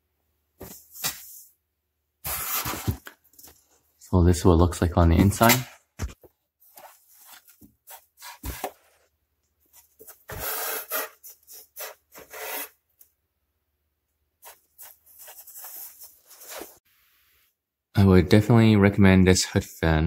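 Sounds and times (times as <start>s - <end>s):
rubbing and scraping noises: 14.4s - 16.8s.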